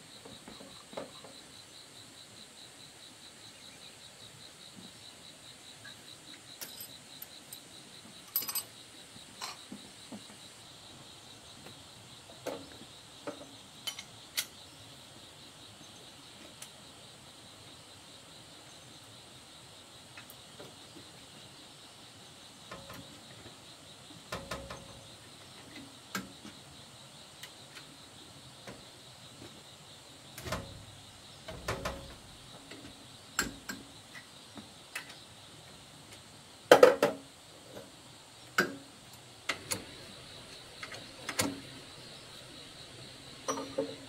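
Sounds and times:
faint high-pitched hum: 0.0s - 44.0s
metal tools clanking on engine: 8.3s - 8.7s, 43.4s - 44.0s.

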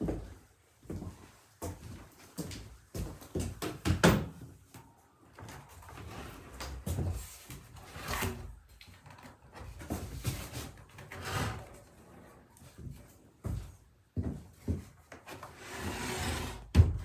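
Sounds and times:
footsteps on wooden floor: 0.0s - 4.0s, 12.6s - 15.4s
wooden door scraping on floor: 11.0s - 12.3s, 15.4s - 17.0s.

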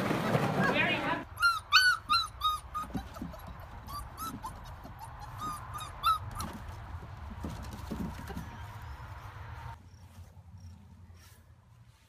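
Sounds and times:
puppy whimpering: 1.3s - 6.6s.

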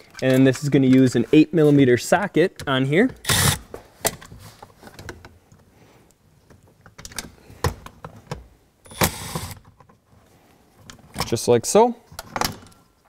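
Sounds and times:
cordless driver whirring: 3.3s - 3.6s.

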